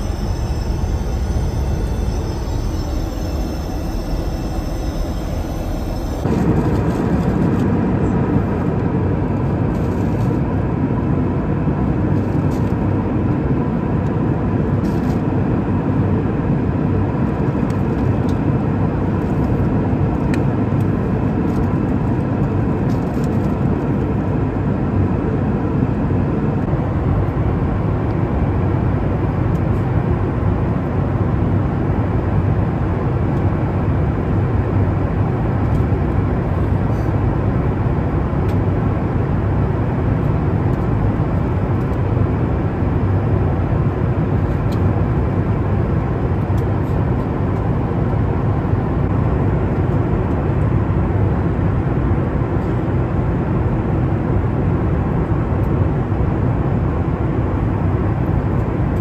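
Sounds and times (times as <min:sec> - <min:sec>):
lavatory sound: 0:00.0 - 0:06.6
faint steady hum: 0:00.0 - 0:08.2
airliner cabin rumble: 0:00.0 - 0:11.0.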